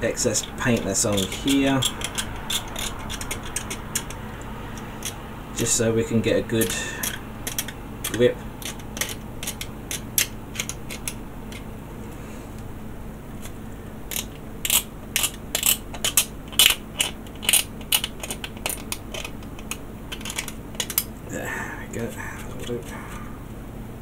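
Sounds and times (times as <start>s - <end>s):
scraping plastic model part: 0.3s - 5.2s, 13.4s - 21.1s.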